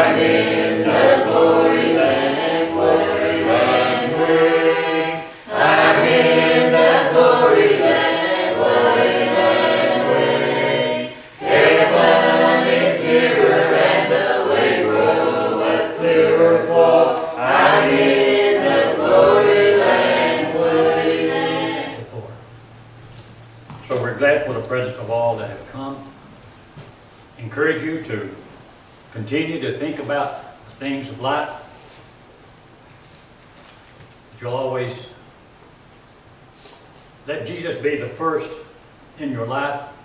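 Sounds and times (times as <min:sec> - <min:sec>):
group singing a hymn: 0:00.0 - 0:22.4.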